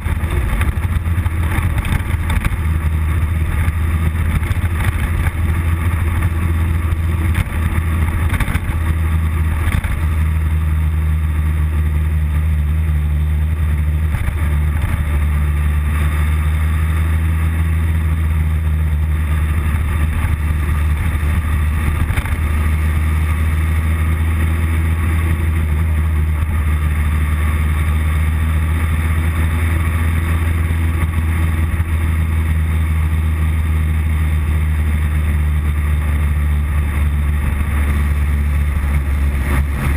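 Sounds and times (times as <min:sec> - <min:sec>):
wind noise: 0:00.0 - 0:10.5
motorcycle engine droning: 0:00.0 - 0:39.9
road noise: 0:00.0 - 0:39.9.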